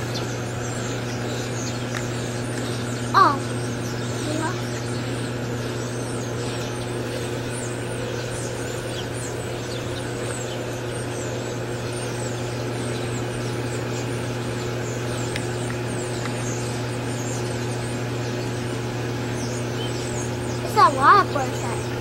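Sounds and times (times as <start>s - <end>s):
flock of birds chirping: 0.0s - 22.0s
steady low hum: 0.0s - 22.0s.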